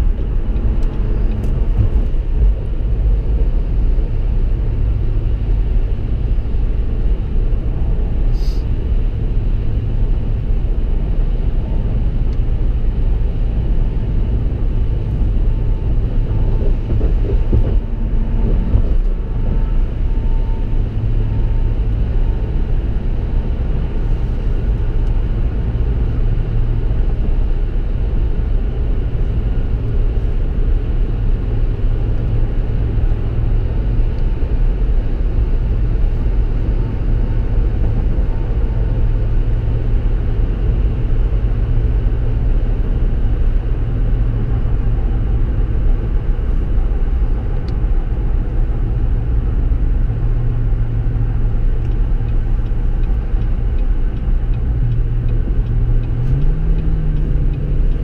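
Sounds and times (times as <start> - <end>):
road and engine rumble in car: 0.0 - 58.0.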